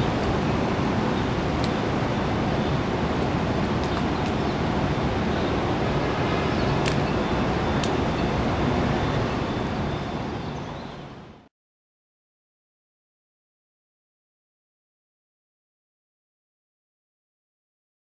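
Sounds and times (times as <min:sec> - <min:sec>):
city street noise: 0:00.0 - 0:11.5.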